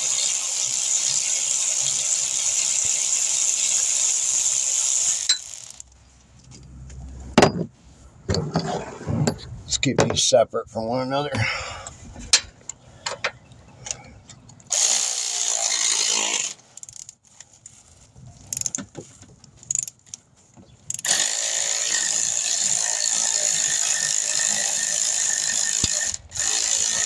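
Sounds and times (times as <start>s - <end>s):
power ratchet spinning bolt: 0.0s - 5.9s, 14.7s - 17.1s, 20.9s - 27.0s.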